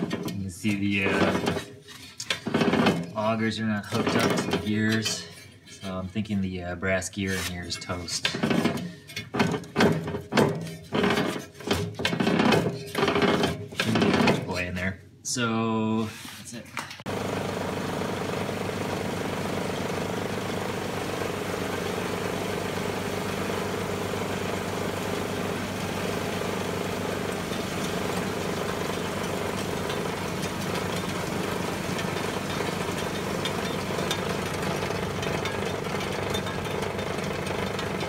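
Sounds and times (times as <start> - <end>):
snow blower engine running: 17.1 - 38.0.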